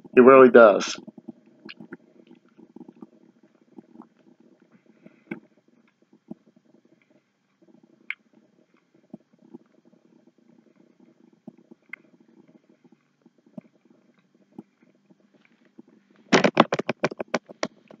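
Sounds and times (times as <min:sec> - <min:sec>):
small mouth clicks: 0:01.0 - 0:03.2, 0:08.0 - 0:08.4.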